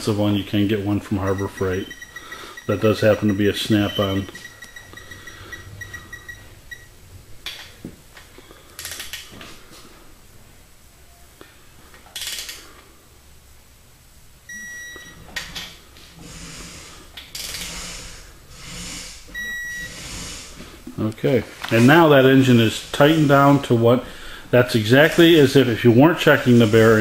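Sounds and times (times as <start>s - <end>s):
torque wrench buzzing beep: 1.2s - 6.9s, 14.5s - 15.2s, 19.3s - 20.2s
wrench ratchet rasps: 12.2s - 12.6s.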